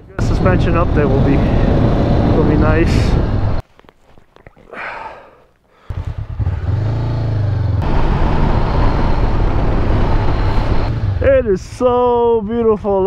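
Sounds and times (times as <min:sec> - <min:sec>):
motorcycle engine: 0:00.0 - 0:03.6, 0:05.8 - 0:12.0
wind noise: 0:00.0 - 0:03.6, 0:07.8 - 0:11.8.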